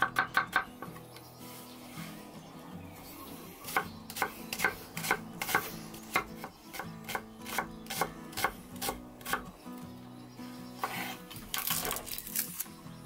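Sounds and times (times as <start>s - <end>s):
knife chopping on wooden board: 3.7s - 9.4s.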